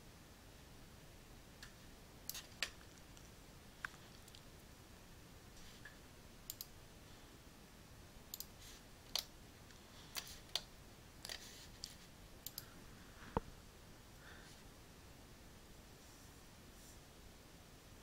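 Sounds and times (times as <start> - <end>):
computer mouse and keyboard clicks: 1.6 - 4.4, 8.3 - 12.7.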